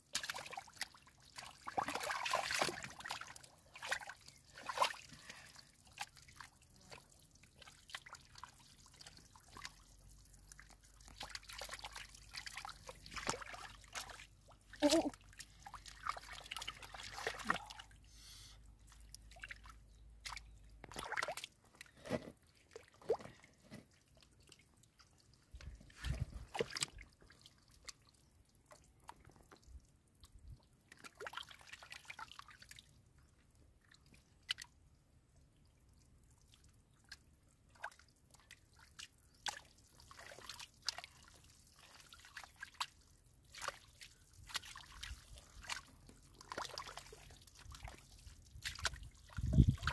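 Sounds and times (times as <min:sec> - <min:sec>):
hands scooping through muddy water: 0:00.0 - 0:18.1, 0:18.8 - 0:33.3, 0:37.0 - 0:49.9
small splashes squelches and drips: 0:00.0 - 0:49.9.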